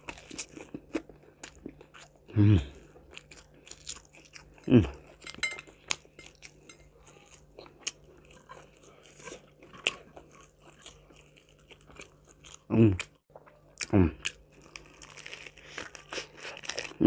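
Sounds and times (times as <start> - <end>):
chewing crispy fried chicken: 0.0 - 17.0.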